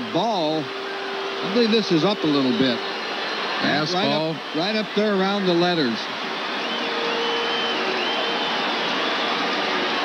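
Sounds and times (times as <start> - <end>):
stadium crowd cheering: 0.0 - 10.0
high whistle-like tones: 6.3 - 10.0.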